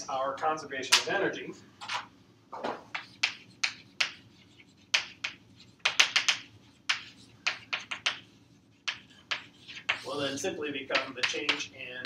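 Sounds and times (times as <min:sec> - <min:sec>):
chalk tapping and scratching: 0:02.9 - 0:11.8.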